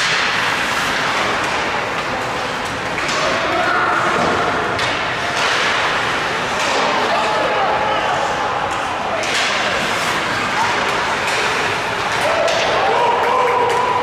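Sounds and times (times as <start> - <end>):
hubbub of voices: 1.2 - 14.0.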